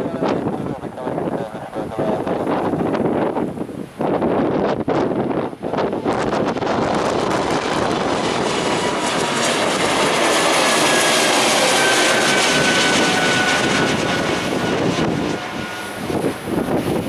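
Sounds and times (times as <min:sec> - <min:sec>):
jet engine high whine: 0:00.0 - 0:17.0
jet aircraft passing overhead: 0:05.0 - 0:17.0.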